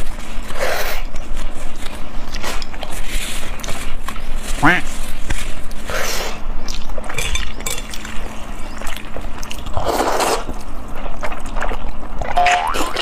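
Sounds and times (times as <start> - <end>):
wet chewing: 0.0 - 4.4, 5.2 - 13.0
slurping noodles: 8.9 - 10.6.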